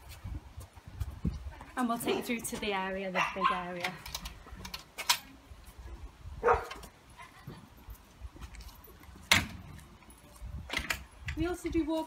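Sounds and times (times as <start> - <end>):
dog barking: 3.2 - 3.7, 6.4 - 6.8.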